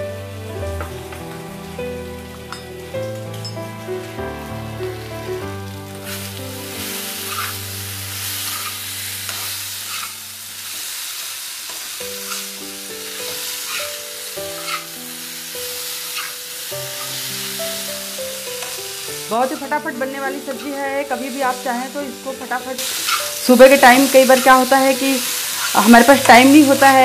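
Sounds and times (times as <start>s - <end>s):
potatoes sizzling in oil: 0.0s - 27.0s
spatula scraping pan: 6.1s - 7.6s, 8.2s - 10.2s, 13.2s - 14.9s, 15.9s - 16.4s.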